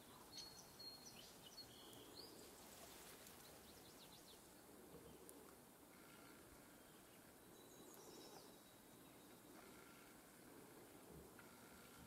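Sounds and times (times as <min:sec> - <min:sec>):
bird chirps: 0:00.0 - 0:02.4.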